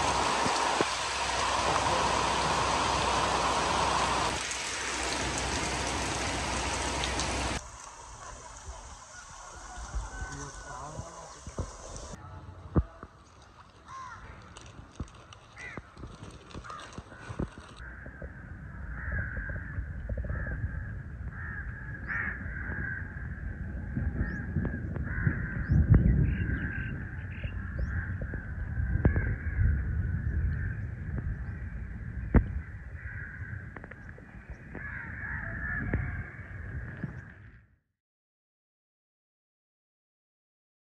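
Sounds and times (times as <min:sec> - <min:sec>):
wind rumble on microphone: 0:05.2 - 0:13.2, 0:14.2 - 0:37.8
crows cawing: 0:13.9 - 0:14.5, 0:15.6 - 0:15.9, 0:16.6 - 0:23.4, 0:25.0 - 0:25.7, 0:32.6 - 0:33.8, 0:34.6 - 0:36.8.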